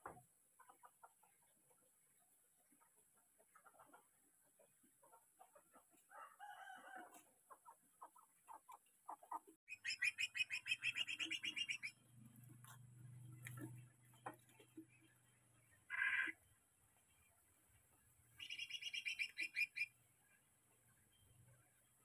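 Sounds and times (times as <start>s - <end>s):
bird chirping: 8.0s - 17.4s, 18.3s - 22.0s.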